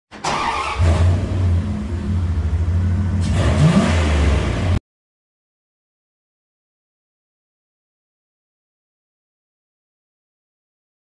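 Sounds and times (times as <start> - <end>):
car engine running and revving: 0.8 - 4.8.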